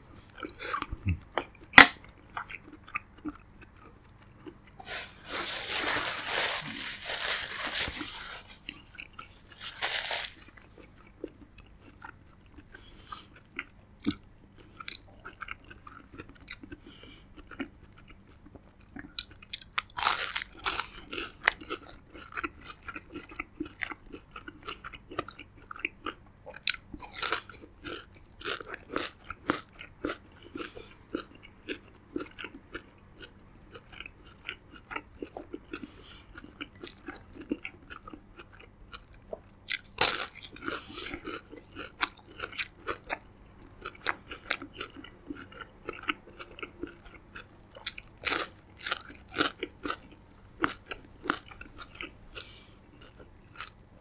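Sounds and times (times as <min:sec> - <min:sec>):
person chewing crunchy food: 0:00.1 - 0:53.8
loud crunching bites: 0:19.6 - 0:21.8.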